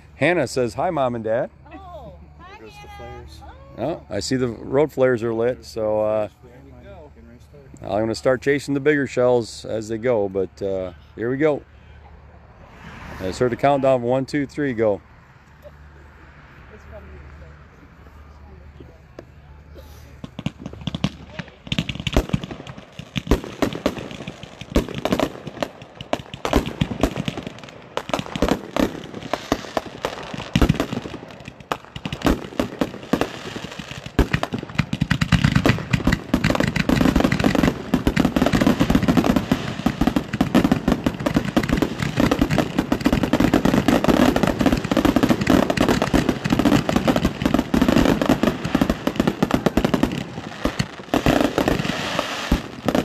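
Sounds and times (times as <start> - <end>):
fireworks popping and banging: 19.1 - 53.0.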